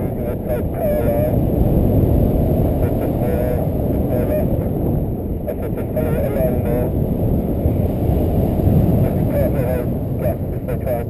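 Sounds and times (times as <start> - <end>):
wind rushing over microphone: 0.0 - 11.0.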